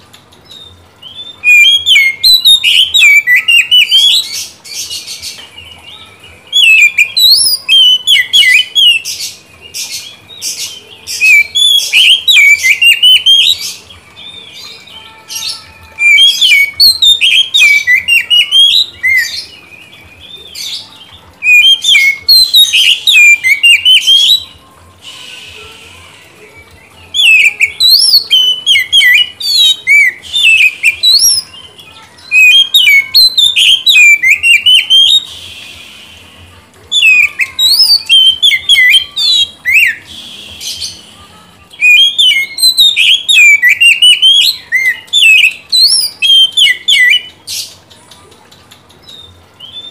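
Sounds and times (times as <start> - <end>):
bird singing whistles: 0.5 - 4.4, 6.5 - 9.0, 11.2 - 13.7, 15.3 - 19.5, 21.4 - 26.1, 27.2 - 31.5, 32.2 - 36.4, 37.0 - 41.0, 41.8 - 47.4.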